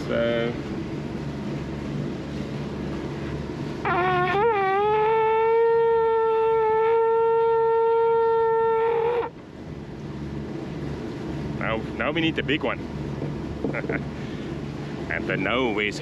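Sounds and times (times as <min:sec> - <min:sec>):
conch shell horn note: 0:03.8 - 0:09.3.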